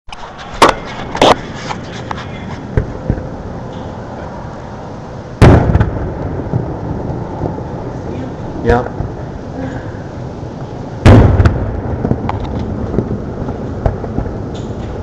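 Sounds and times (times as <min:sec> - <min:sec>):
firework sharp crack: 0:05.4 - 0:07.6, 0:11.0 - 0:15.0
fireworks boom with rumbling echo: 0:05.4 - 0:09.4, 0:10.6 - 0:15.0.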